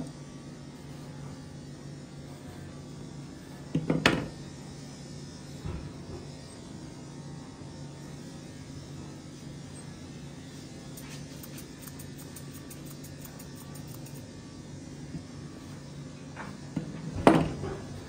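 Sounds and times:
electric equipment hum: 0.0 - 18.0
grooming shears snipping: 10.8 - 14.3.

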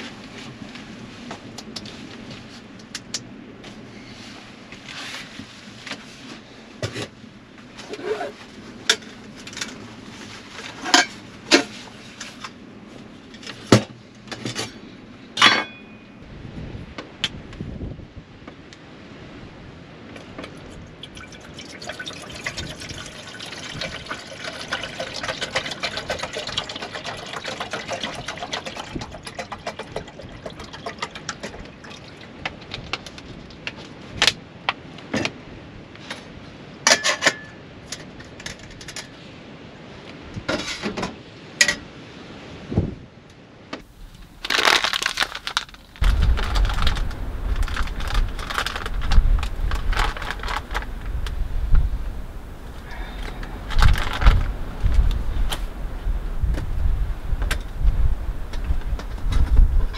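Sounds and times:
water pouring into kettle: 21.0 - 32.3
low rumble: 43.9 - 59.9
foil bag crinkling: 44.0 - 51.4, 52.8 - 55.2.

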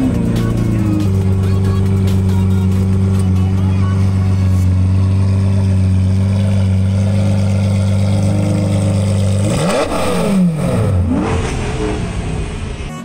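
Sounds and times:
car engine idling and revving: 0.0 - 13.0.

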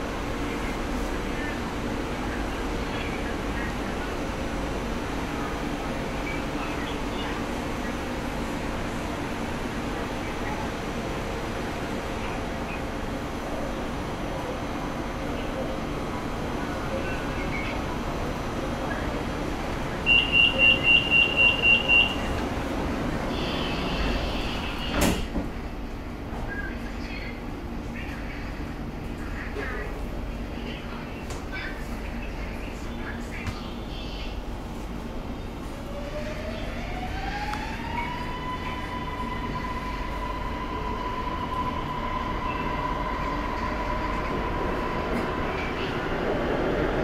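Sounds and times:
high warning beeps: 20.1 - 22.3
sliding doors closing: 23.8 - 25.6.

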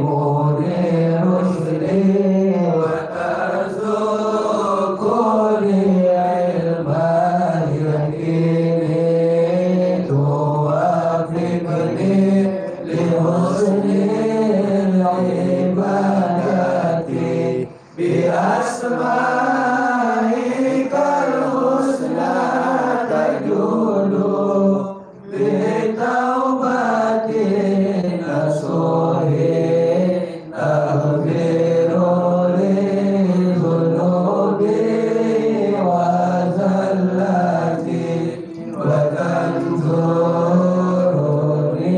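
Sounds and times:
man chanting: 0.0 - 21.4.

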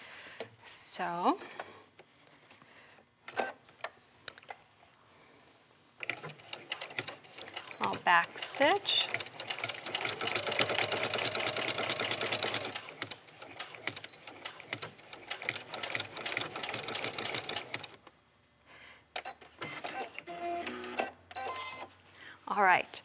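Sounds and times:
sewing machine stitching: 6.0 - 18.0.

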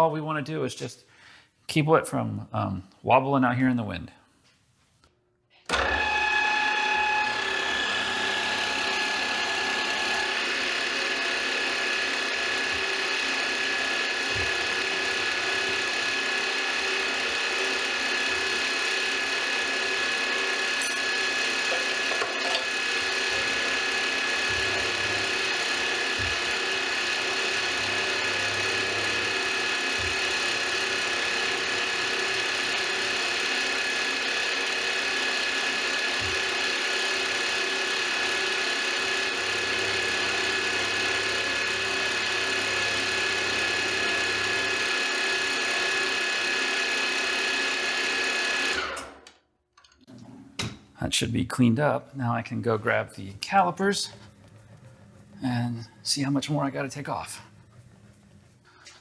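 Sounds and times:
milling machine whining: 5.7 - 49.2.

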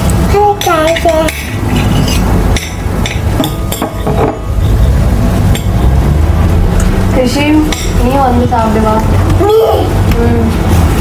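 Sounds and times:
loud low rumble: 4.3 - 11.0.

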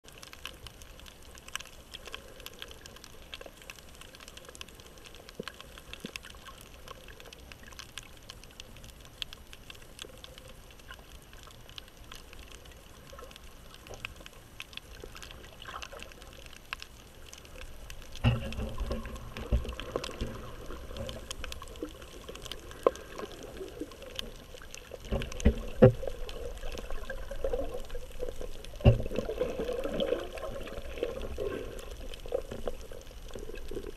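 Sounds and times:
faint underwater crackle of clicks: 0.0 - 33.9
low rumbling water thuds: 18.1 - 22.2, 25.0 - 33.9.

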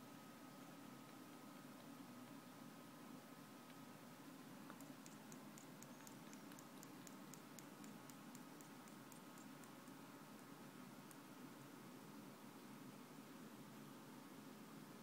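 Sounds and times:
kitten mouth clicking: 4.7 - 9.9.

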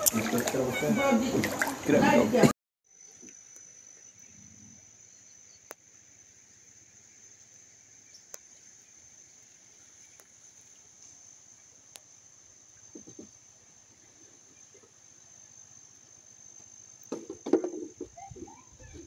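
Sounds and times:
high-pitched insect chorus: 0.0 - 19.0
soft ticks: 8.1 - 8.5.

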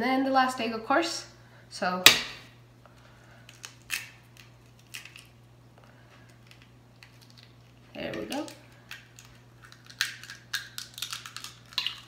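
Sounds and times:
steady low hum: 0.0 - 12.0
eggshell crackling: 3.2 - 5.6, 6.2 - 12.0.

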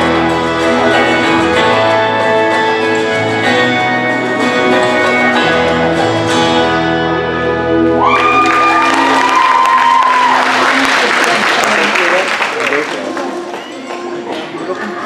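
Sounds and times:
instrumental guitar music: 0.0 - 10.2.

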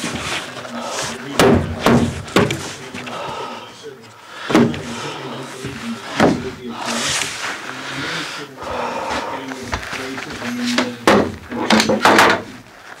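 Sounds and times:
wall panel knocks: 1.4 - 2.6.

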